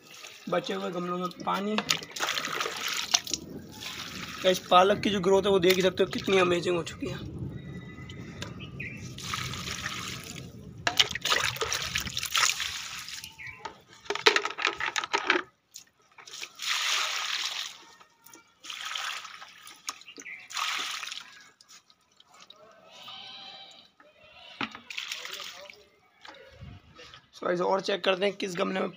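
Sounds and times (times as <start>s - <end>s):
water pouring into soil: 0.0s - 7.2s, 9.0s - 13.6s, 15.7s - 22.6s, 24.9s - 25.8s.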